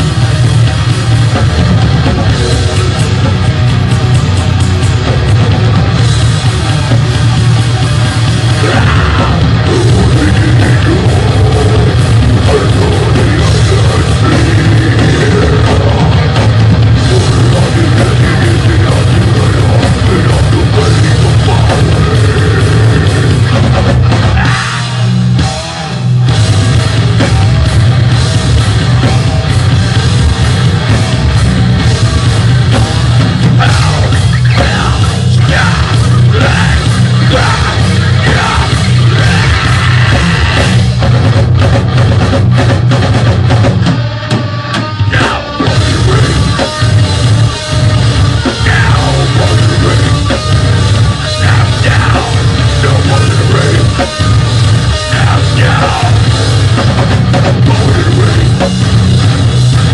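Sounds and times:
metal band playing: 0.0 - 59.9
growled vocals: 8.5 - 25.3, 33.4 - 40.9, 45.1 - 46.9, 48.4 - 59.0.

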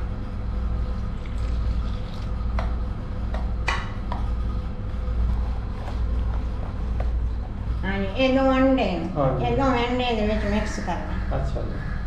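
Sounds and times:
steady low hum: 0.0 - 12.0
water pouring into a bowl: 1.0 - 2.4.

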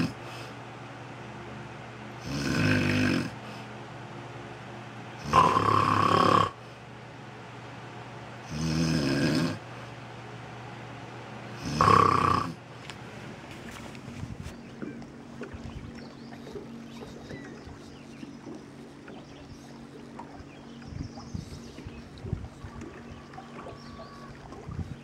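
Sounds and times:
person snoring heavily: 2.2 - 3.4, 5.2 - 6.6, 8.5 - 9.6, 11.6 - 12.6.

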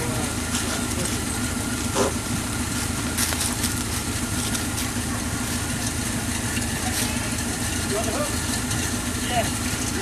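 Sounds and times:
vehicle engine idling: 0.0 - 10.0.

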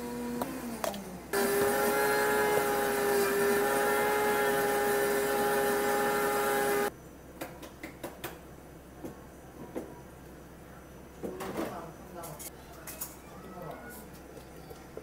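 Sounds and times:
blender motor humming: 0.0 - 6.9.

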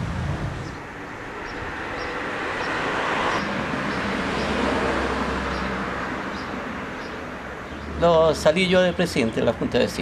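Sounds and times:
vehicle passing: 0.0 - 10.0.

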